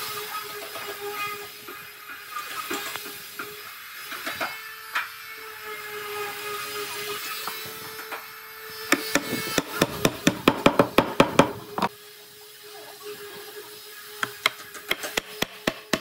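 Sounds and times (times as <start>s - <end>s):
hammering on wood: 8.9s - 11.9s, 14.2s - 16.0s.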